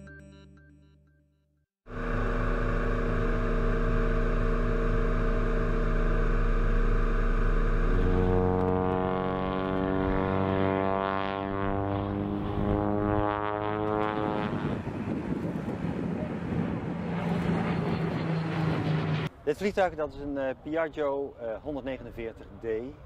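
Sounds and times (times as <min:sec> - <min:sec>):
aircraft piston engine running: 0:01.9 - 0:19.3
planes flying over: 0:01.9 - 0:23.0.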